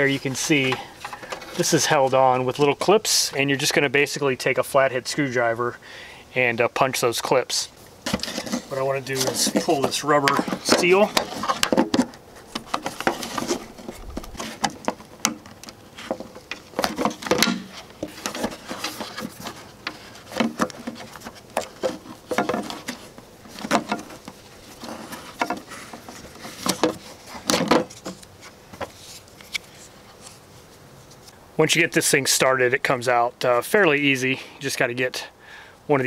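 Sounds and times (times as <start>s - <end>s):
rubber scraping against plastic: 0.0s - 3.0s, 8.0s - 30.5s.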